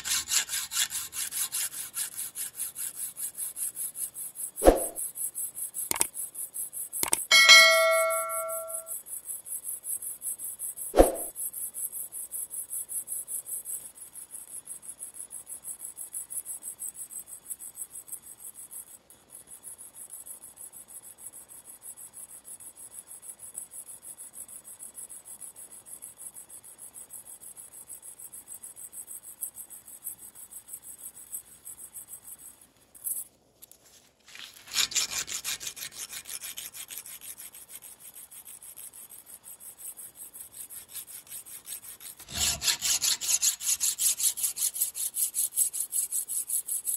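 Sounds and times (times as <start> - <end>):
file rasping on steel: 0.0 - 4.2, 34.5 - 39.0, 39.9 - 46.9.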